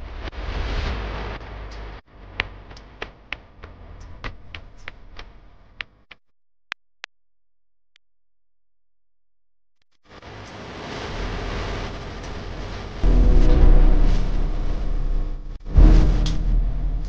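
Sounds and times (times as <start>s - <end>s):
rough rumbling noise: 11.0s - 17.0s.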